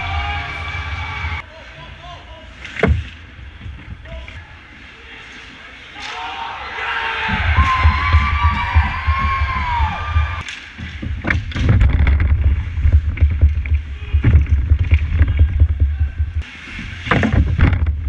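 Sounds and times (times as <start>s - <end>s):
hockey sticks clacking: 7.3s - 16.4s
wind rumble on microphone: 11.0s - 16.5s.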